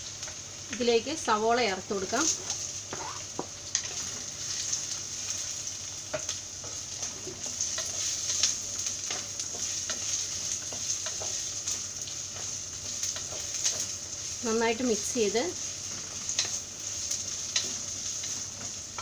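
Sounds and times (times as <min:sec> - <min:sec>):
food sizzling in hot oil: 0:00.0 - 0:19.0
spatula scraping and tapping pot: 0:09.0 - 0:11.5.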